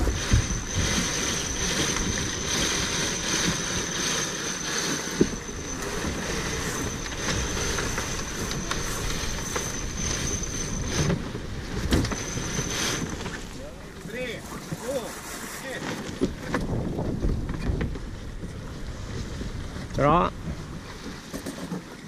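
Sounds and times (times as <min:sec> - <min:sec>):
thin high whine: 0:00.0 - 0:14.5
wind buffeting microphone: 0:00.0 - 0:15.0, 0:16.0 - 0:21.3
water rushing along hull: 0:00.0 - 0:22.0.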